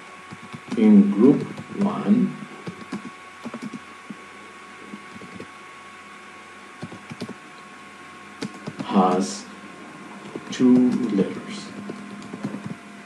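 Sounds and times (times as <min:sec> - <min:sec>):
faint steady hum: 0:00.0 - 0:13.0
keyboard key clicks: 0:08.4 - 0:08.9.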